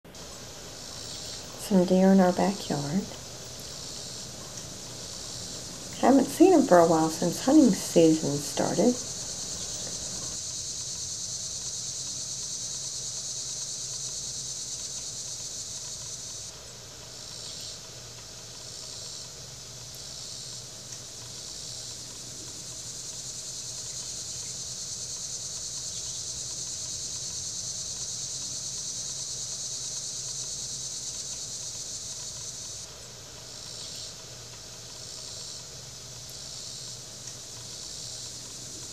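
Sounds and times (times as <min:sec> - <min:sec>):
faint low hum: 0:00.1 - 0:10.4
crickets and insects chirping: 0:00.1 - 0:38.9.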